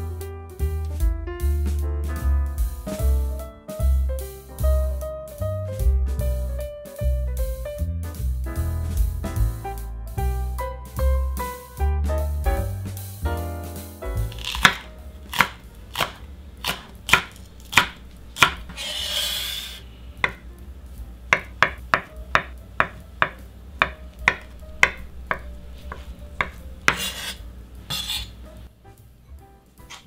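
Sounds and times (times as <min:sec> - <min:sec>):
knife chopping on wooden board: 0:14.2 - 0:20.4, 0:21.3 - 0:28.3
short hissing scrape: 0:18.7 - 0:20.0, 0:26.9 - 0:28.4.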